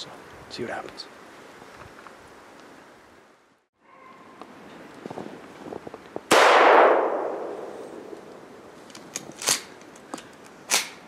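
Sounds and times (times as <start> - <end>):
shotgun blast echoing: 6.3 - 8.2.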